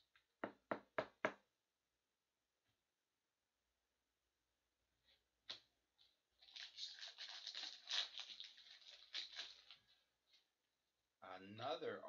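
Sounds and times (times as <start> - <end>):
foil wrapper crinkling and tearing: 6.4 - 9.9.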